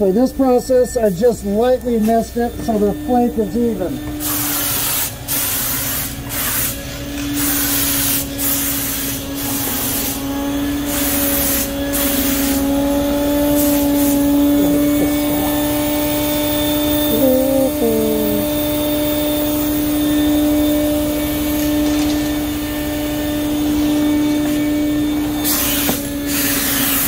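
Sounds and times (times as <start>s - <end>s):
steady hum: 0.0s - 27.0s
spray gun hissing: 4.2s - 21.6s.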